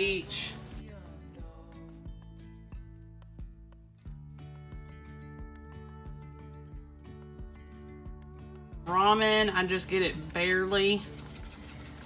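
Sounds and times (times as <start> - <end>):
background music with held chords: 0.0 - 12.0.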